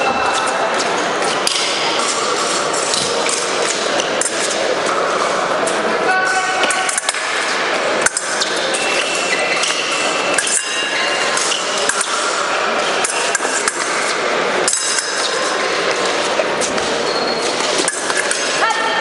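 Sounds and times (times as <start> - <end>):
large hall background noise: 0.0 - 19.0
blades clinking: 6.6 - 14.0.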